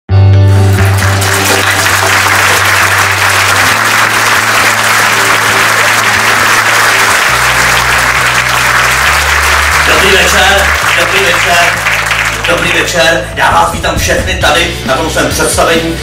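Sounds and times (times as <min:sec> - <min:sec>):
music with steady bass line: 0:00.1 - 0:16.0
audience applauding: 0:00.5 - 0:13.0.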